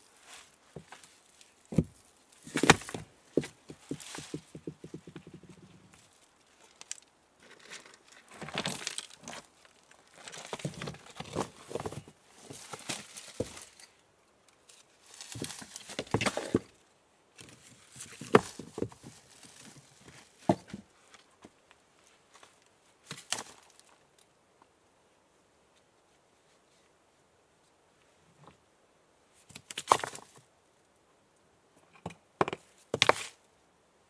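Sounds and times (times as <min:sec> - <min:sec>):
stones knocking and scraping: 0:00.8 - 0:13.8, 0:15.1 - 0:16.8, 0:17.4 - 0:20.9, 0:29.5 - 0:30.4, 0:31.9 - 0:33.4.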